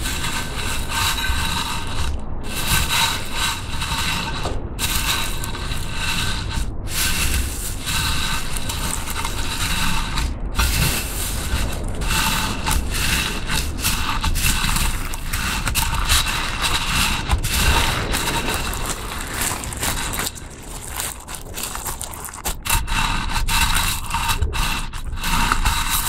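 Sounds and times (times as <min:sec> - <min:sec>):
foam beads crunching in slime: 0:00.0 - 0:26.0.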